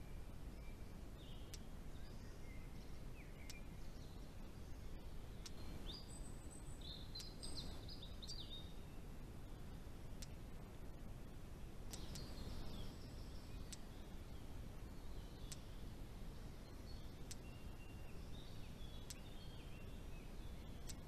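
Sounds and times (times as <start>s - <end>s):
low background hum: 0.0s - 21.0s
songbirds chirping and whistling: 0.0s - 21.0s
faint clicks: 1.2s - 4.1s, 5.4s - 6.0s, 7.1s - 8.3s, 9.6s - 10.7s, 11.8s - 21.0s.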